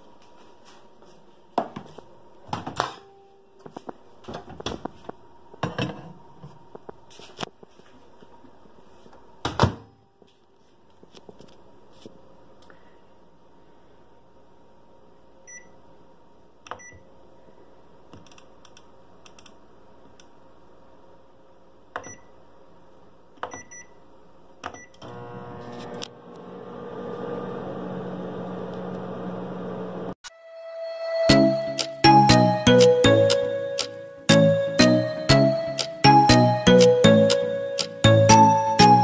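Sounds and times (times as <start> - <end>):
microwave beeps: 15.5 - 15.8, 16.8 - 17.0, 22.0 - 22.3, 23.5 - 24.0
microwave oven humming: 24.8 - 30.2.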